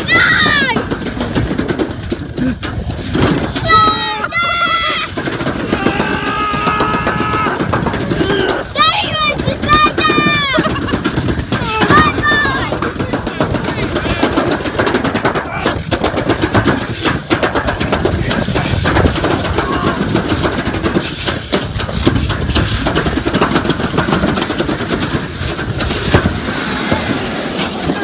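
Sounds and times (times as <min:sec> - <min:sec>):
steady rushing noise: 0:00.0 - 0:28.0
toboggan rattling down steel track: 0:00.0 - 0:28.0.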